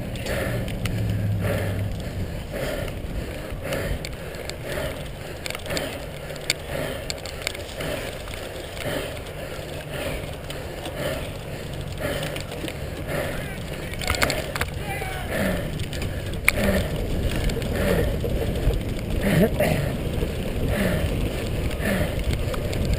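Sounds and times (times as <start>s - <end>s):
bike tyre and drivetrain noise: 0.0s - 22.9s
sharp rattling clicks: 2.8s - 14.8s
wind on microphone: 13.1s - 22.9s.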